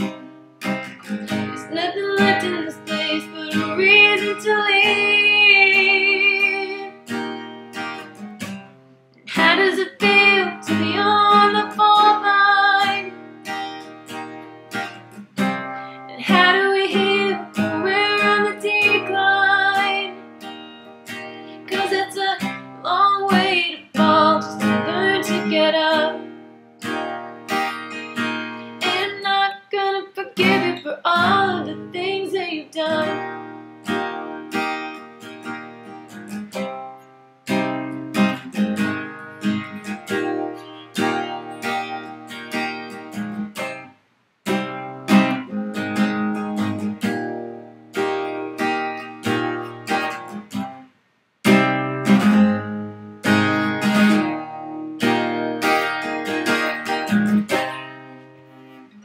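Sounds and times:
acoustic guitar strumming: 0.0s - 59.0s
woman singing: 1.3s - 7.0s, 9.3s - 13.2s, 16.1s - 20.2s, 21.6s - 26.3s, 28.8s - 33.4s.

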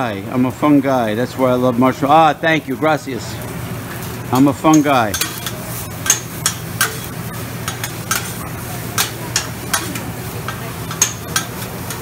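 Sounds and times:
food sizzling: 0.0s - 12.0s
metal spatulas scraping on griddle: 4.0s - 12.0s.

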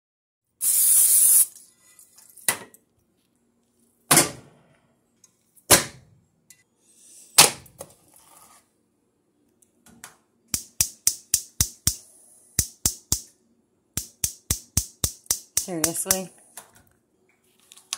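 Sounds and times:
hiss: 0.6s - 1.6s.

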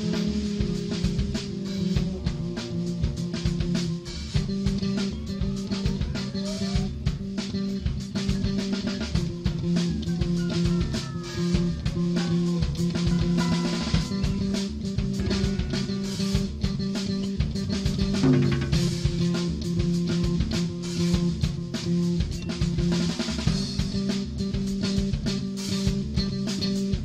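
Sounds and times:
band music with drums and guitar: 0.0s - 27.0s.

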